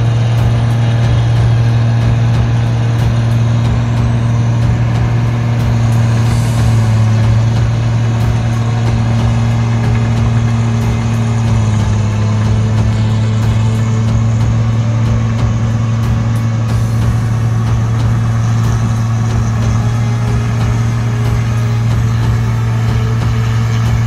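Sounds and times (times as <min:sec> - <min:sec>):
diesel engine humming: 0:00.0 - 0:24.0.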